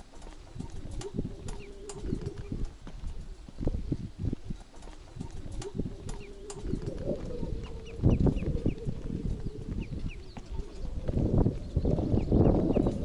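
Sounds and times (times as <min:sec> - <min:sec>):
faint steady hum: 0:00.0 - 0:13.0
footsteps on wooden planks: 0:00.0 - 0:13.0
bird chirps: 0:00.2 - 0:02.8, 0:04.7 - 0:13.0.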